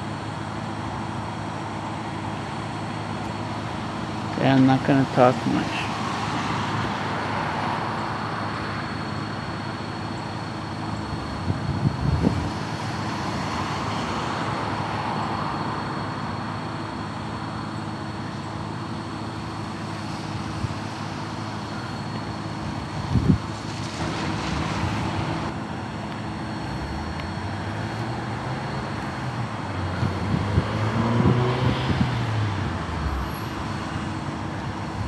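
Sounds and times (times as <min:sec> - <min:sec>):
diesel locomotive drone: 0:00.0 - 0:35.0
low rumble: 0:32.3 - 0:34.1.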